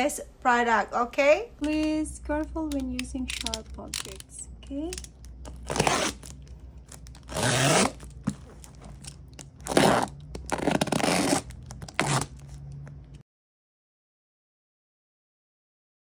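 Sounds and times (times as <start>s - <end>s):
packing tape tearing: 2.7s - 12.9s
utility knife slitting packing tape: 4.9s - 8.3s, 9.0s - 12.6s.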